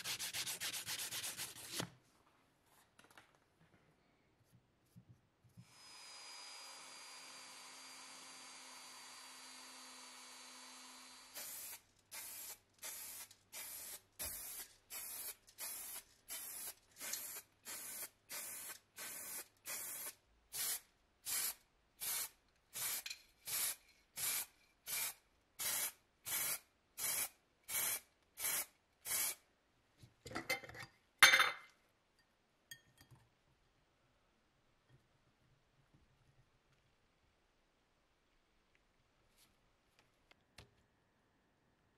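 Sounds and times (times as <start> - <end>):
spray paint hissing bursts: 11.4 - 29.4.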